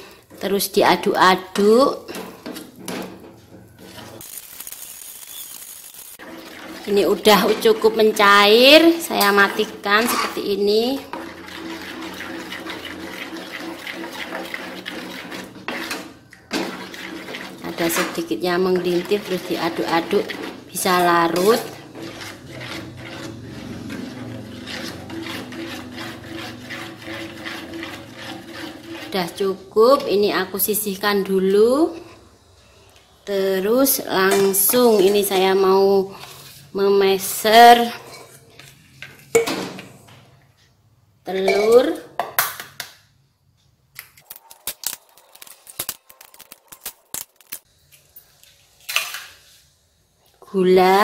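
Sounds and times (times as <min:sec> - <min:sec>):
metal spoon scraping saucepan: 0:00.0 - 0:04.3, 0:05.4 - 0:32.2, 0:33.8 - 0:39.5, 0:41.3 - 0:42.0
eggs cracking on metal bowl: 0:44.0 - 0:47.7.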